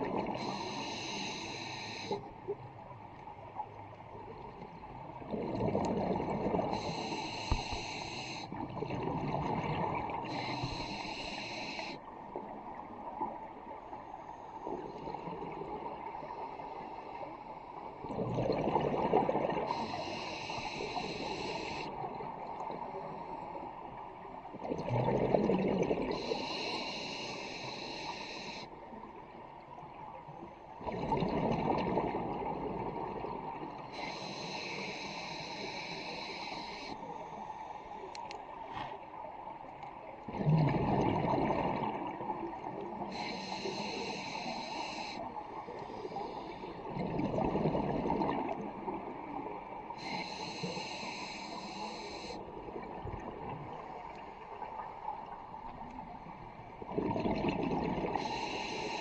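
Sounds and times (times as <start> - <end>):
exhaled air bubbling underwater: 0.0 - 59.0
regulator breath hissing: 0.4 - 2.2, 6.7 - 8.5, 10.3 - 12.0, 19.7 - 21.9, 26.1 - 28.7, 33.9 - 37.1, 43.1 - 46.7, 50.0 - 52.4, 58.2 - 59.0.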